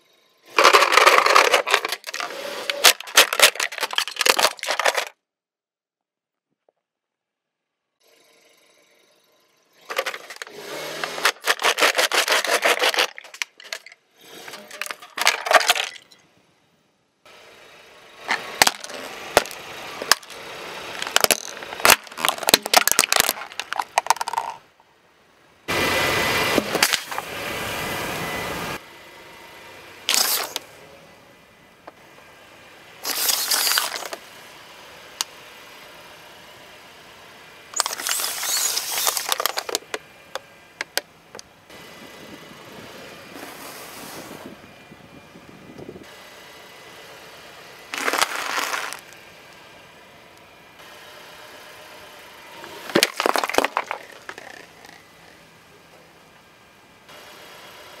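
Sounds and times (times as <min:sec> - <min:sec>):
crunching bursts: 0:00.5 - 0:05.2, 0:09.8 - 0:16.1, 0:18.3 - 0:24.6, 0:30.1 - 0:30.7, 0:33.0 - 0:34.2, 0:37.8 - 0:41.0, 0:47.9 - 0:49.2, 0:52.8 - 0:55.3
plastic cracking and snapping: 0:00.6 - 0:05.1, 0:21.0 - 0:24.6, 0:52.9 - 0:55.0.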